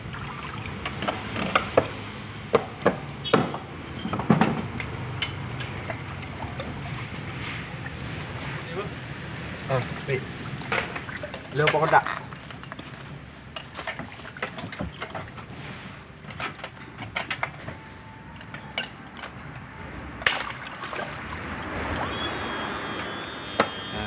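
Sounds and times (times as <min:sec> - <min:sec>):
water sloshing around wading people: 0:00.0 - 0:24.0
metal clinks and knocks: 0:02.9 - 0:06.0, 0:16.2 - 0:20.5.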